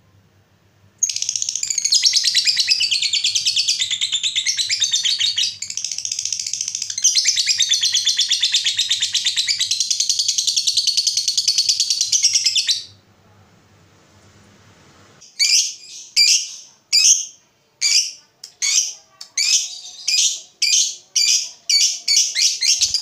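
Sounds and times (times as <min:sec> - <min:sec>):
bird chattering trill: 0:01.0 - 0:12.8.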